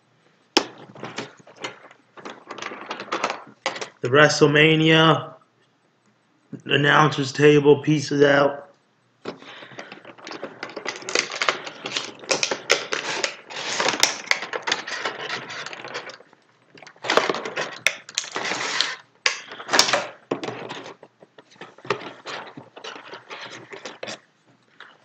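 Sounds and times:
plastic packaging crinkling: 9.3 - 25.0.

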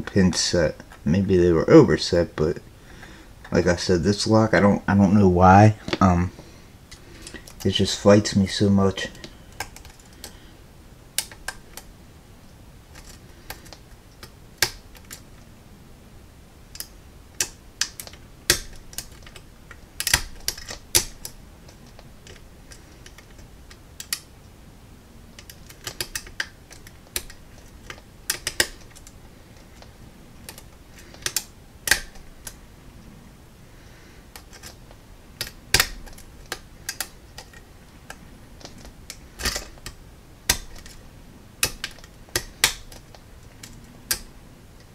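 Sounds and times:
lock pick clicking in lock: 20.0 - 24.3, 25.4 - 29.1, 29.8 - 32.6, 35.4 - 41.0, 41.6 - 44.3.

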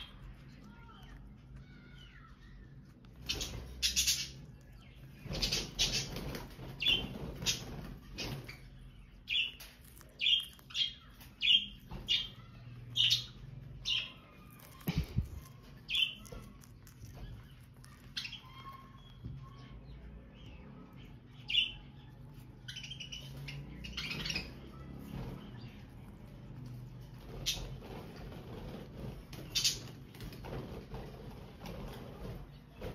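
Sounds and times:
parrots chirping: 0.0 - 30.2
parrot biting scratchy noises: 9.3 - 12.2, 14.3 - 19.0.

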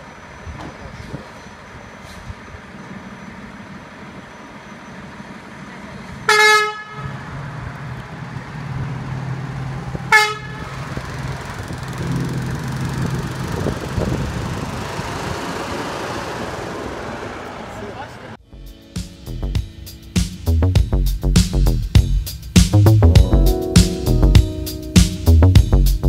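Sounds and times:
truck engine running: 0.0 - 18.4
truck horn toots: 6.3 - 7.4, 10.1 - 10.8.

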